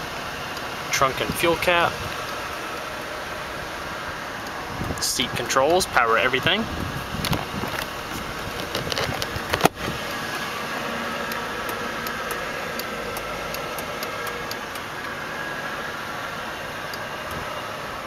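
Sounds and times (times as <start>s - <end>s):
car engine idling: 0.0s - 18.0s.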